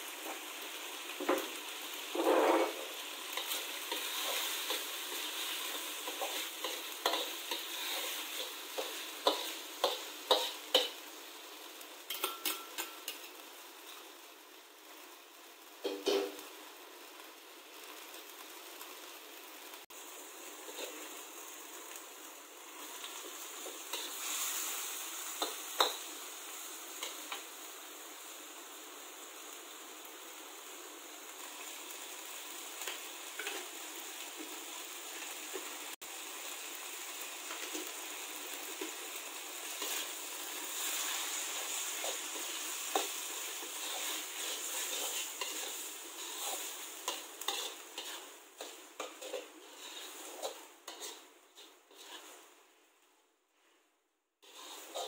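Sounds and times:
food sizzling in oil: 0:00.0 - 0:53.7, 0:54.4 - 0:55.0
metal spatula scraping a pan: 0:01.3 - 0:11.0, 0:15.8 - 0:16.4, 0:20.6 - 0:21.2, 0:22.8 - 0:27.4, 0:33.3 - 0:33.8, 0:39.6 - 0:52.6, 0:54.4 - 0:55.0.

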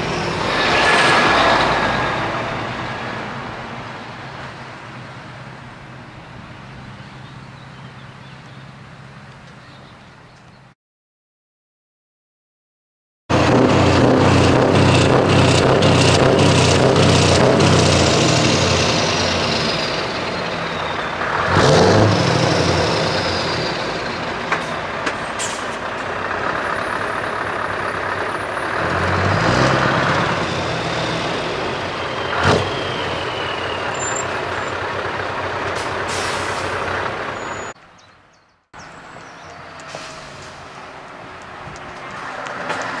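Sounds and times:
truck diesel engine: 0:00.0 - 0:09.2, 0:13.3 - 0:38.0, 0:38.8 - 0:43.0
air brakes hissing: 0:35.8 - 0:36.8, 0:39.7 - 0:40.7.

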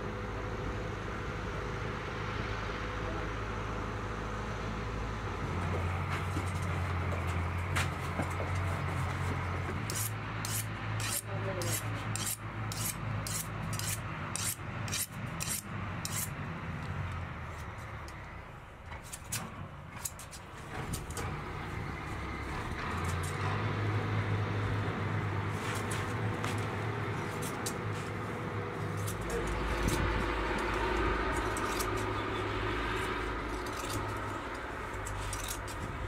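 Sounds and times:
tractor engine humming: 0:00.0 - 0:36.0.

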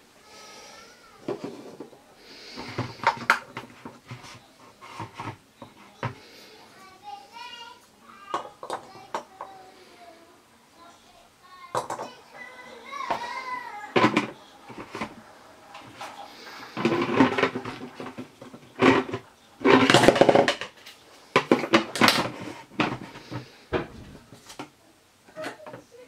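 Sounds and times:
plastic lid rubbing scrapes: 0:02.5 - 0:06.1, 0:13.9 - 0:20.6, 0:21.4 - 0:23.6
plastic toy pieces clattering: 0:13.9 - 0:15.2, 0:15.8 - 0:20.8.

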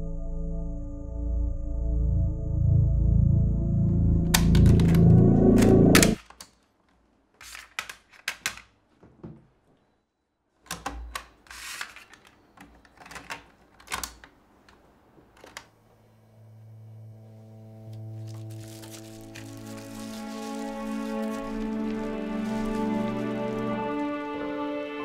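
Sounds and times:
soft music: 0:00.0 - 0:06.2, 0:16.2 - 0:25.0.

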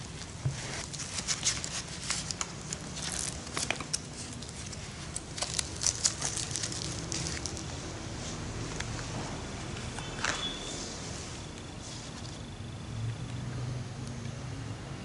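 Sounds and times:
plastic collar crinkling and rasping: 0:00.0 - 0:08.1.

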